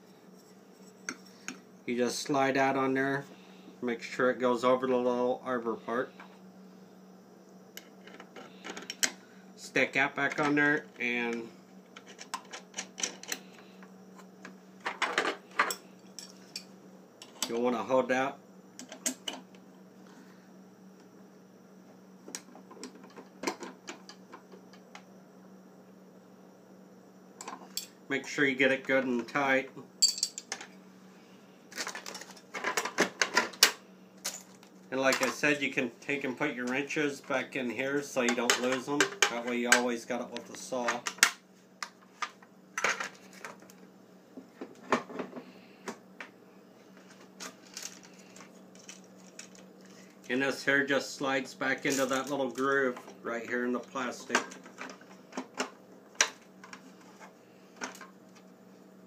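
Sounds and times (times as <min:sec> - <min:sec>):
small metal wrenches clinking: 0:30.0 - 0:30.5.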